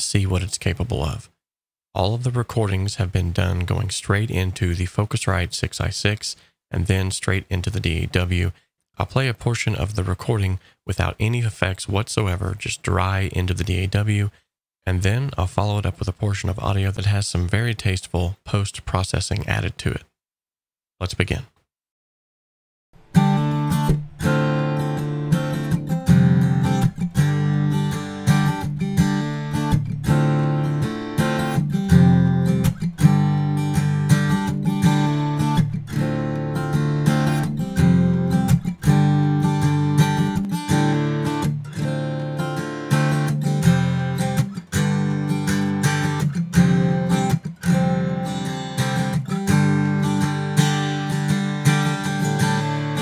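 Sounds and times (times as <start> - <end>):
acoustic guitar strumming chords: 23.0 - 53.0.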